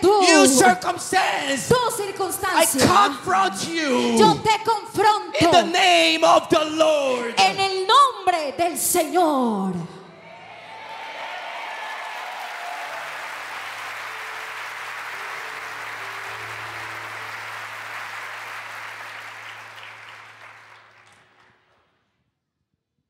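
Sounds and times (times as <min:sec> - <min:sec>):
congregation applauding: 0:00.2 - 0:00.9, 0:10.2 - 0:21.9.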